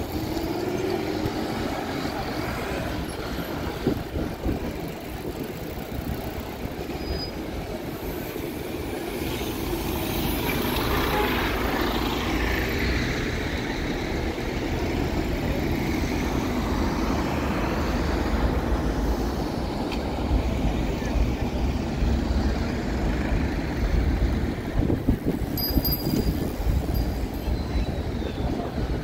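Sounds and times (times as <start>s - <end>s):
bus passing close: 0.0s - 29.0s
road traffic rumble: 0.0s - 29.0s.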